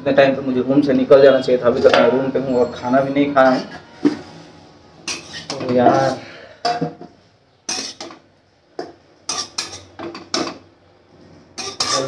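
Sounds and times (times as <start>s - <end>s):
steel utensils clattering: 5.0s - 6.9s, 8.8s - 10.6s, 11.6s - 12.0s.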